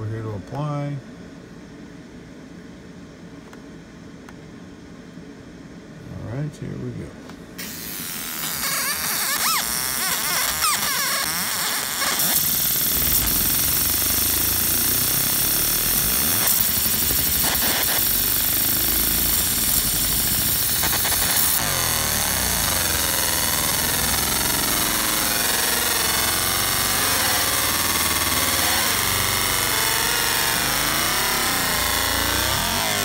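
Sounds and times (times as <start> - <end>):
laser beam hissing on metal: 7.6 - 33.0.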